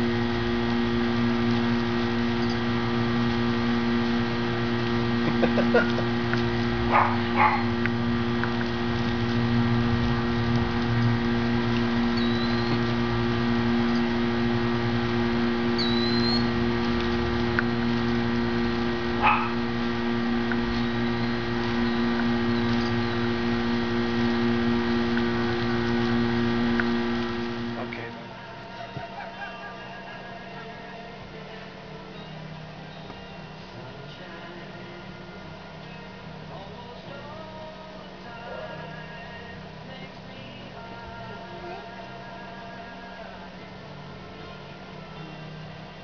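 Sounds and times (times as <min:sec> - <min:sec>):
steady hum: 0:00.0 - 0:46.0
faint high chirps: 0:12.1 - 0:12.8, 0:15.7 - 0:16.6.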